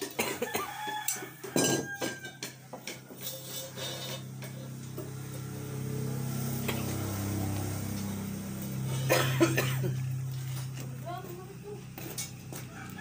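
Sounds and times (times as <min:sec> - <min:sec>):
machine motor humming: 0:04.5 - 0:09.1.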